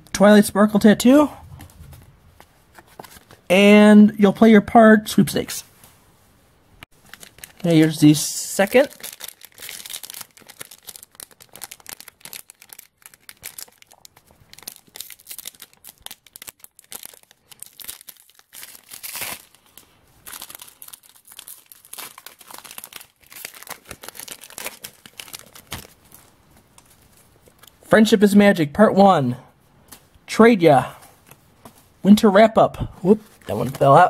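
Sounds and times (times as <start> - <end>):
wrapper crinkling and tearing: 6.9 - 27.8, 33.2 - 34.0.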